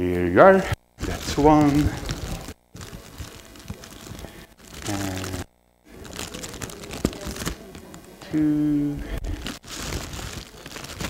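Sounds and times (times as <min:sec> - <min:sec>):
food wrapping crinkling: 0:01.0 - 0:08.2, 0:09.1 - 0:11.0
person murmuring: 0:04.2 - 0:05.4.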